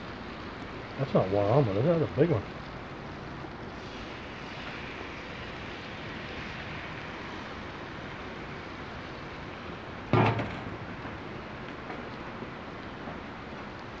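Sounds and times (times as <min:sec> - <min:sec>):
egg and butter sizzling on griddle: 0:02.8 - 0:10.1.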